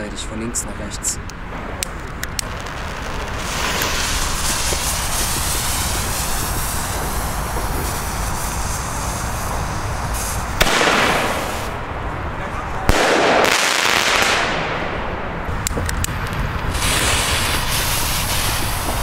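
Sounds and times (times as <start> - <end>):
firework fuse hissing: 2.0 - 11.8, 15.7 - 19.0.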